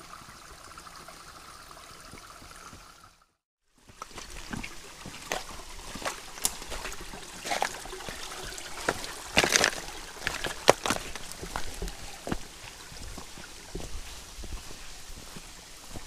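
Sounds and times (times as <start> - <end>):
water trickling: 0.0 - 16.0
footsteps on loose stones: 3.8 - 16.0.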